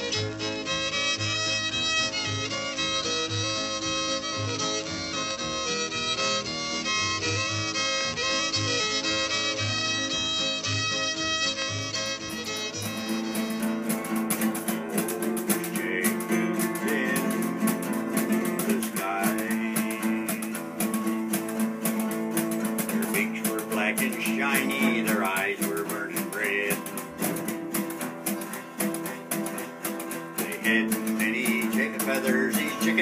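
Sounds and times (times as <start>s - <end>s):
acoustic guitars strumming chords: 11.8s - 33.0s.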